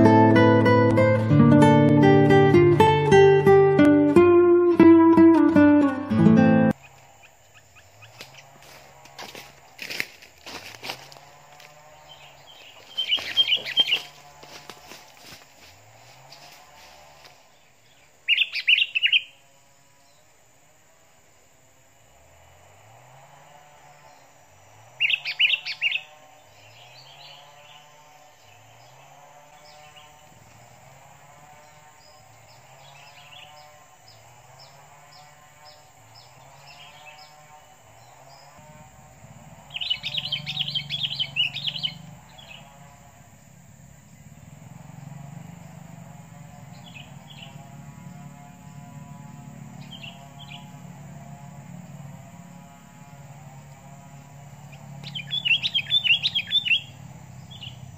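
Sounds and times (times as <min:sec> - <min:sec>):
birds chattering rapidly: 0:06.7 - 0:19.4, 0:24.9 - 0:30.9, 0:31.6 - 0:48.8, 0:49.7 - 0:51.1, 0:54.1 - 0:57.9.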